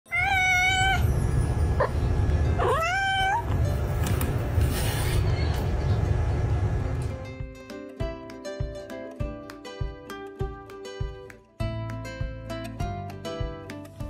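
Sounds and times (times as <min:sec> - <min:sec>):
cat meowing: 0:00.1 - 0:01.1, 0:01.8 - 0:03.7
steady low rumble: 0:01.0 - 0:07.2.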